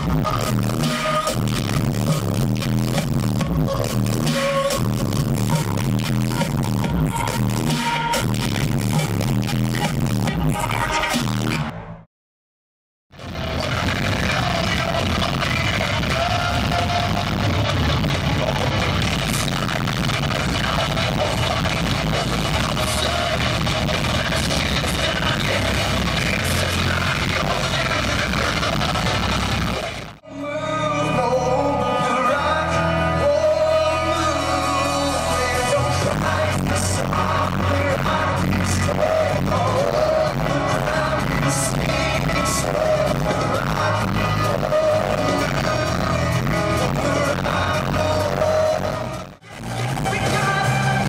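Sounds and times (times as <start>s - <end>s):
drums and bass: 0.0s - 11.8s, 13.1s - 30.2s, 31.2s - 51.0s
live rock band in arena: 0.0s - 12.0s, 13.2s - 51.0s
person singing: 13.4s - 51.0s.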